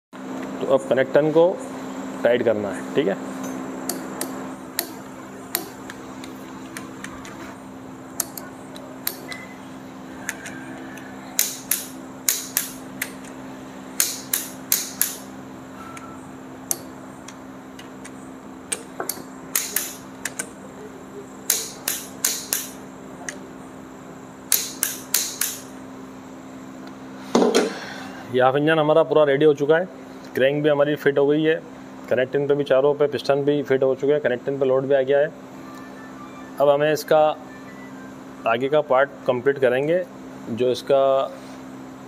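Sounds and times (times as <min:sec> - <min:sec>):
torque wrench clicks: 0:03.9 - 0:07.1, 0:08.2 - 0:09.4, 0:11.4 - 0:13.4, 0:14.0 - 0:15.3, 0:18.7 - 0:20.5, 0:21.5 - 0:23.4, 0:24.5 - 0:25.7.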